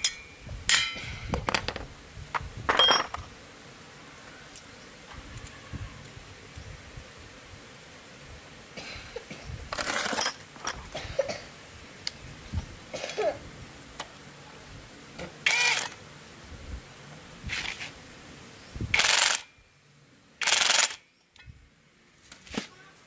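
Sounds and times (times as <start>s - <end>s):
metal tools clattering and scraping: 0.0s - 1.8s, 2.7s - 3.2s, 9.8s - 10.8s.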